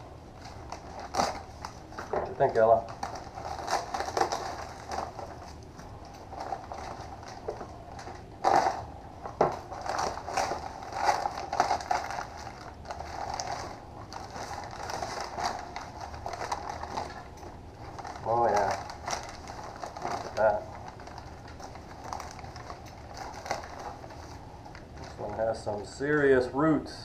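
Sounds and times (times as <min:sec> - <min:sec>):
plastic bag and newspaper crinkling: 0:00.0 - 0:26.5.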